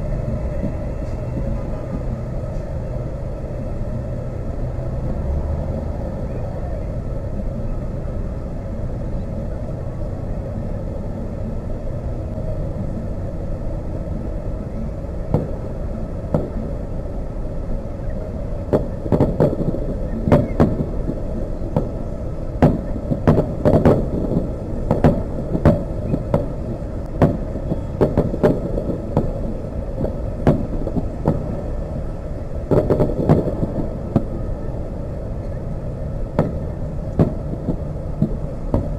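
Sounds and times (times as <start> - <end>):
steady low rumble: 0.0 - 38.9
fireworks bursting: 13.6 - 38.9.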